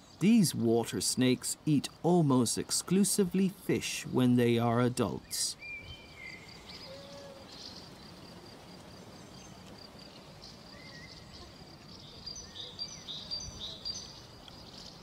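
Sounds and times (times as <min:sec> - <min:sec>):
faint steady hiss: 0:00.0 - 0:15.0.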